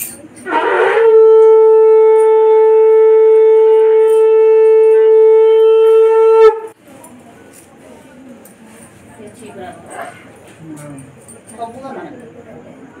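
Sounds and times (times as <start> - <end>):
conch shell blown: 0.4 - 6.8.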